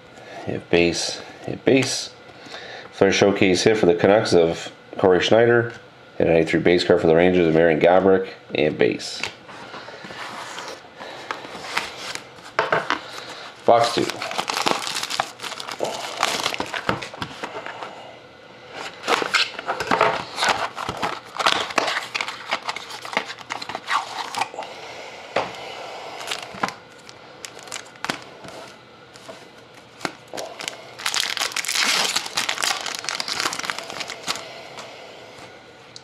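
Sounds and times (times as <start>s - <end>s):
foil card packs crinkling: 10.0s - 17.7s, 18.8s - 24.6s, 26.2s - 34.8s
foil pack tearing open: 13.0s - 17.2s, 19.1s - 24.5s, 26.2s - 28.2s, 29.9s - 34.5s.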